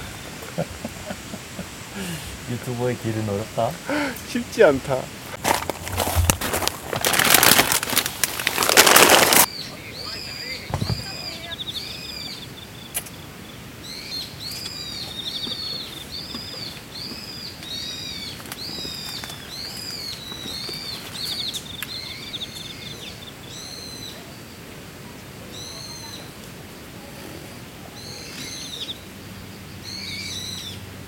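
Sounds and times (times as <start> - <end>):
bird chirping with trills: 9.5 - 24.2.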